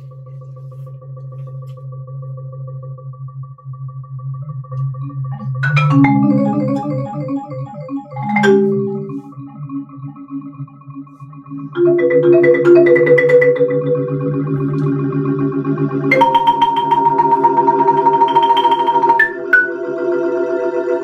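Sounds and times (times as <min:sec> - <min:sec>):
steady low electronic tone: 0:00.0 - 0:21.0
marimba struck with mallets: 0:05.6 - 0:09.3, 0:11.8 - 0:19.8.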